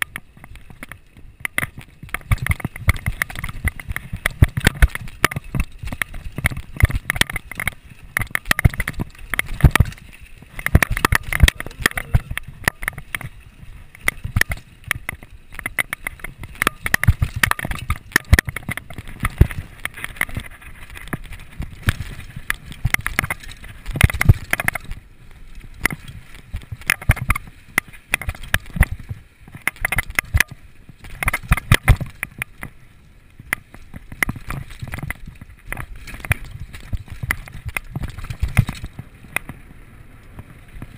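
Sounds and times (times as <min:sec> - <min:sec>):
mountain bike rattling: 0:00.0 - 0:40.9
tyres on loose dirt and rock: 0:00.0 - 0:40.9.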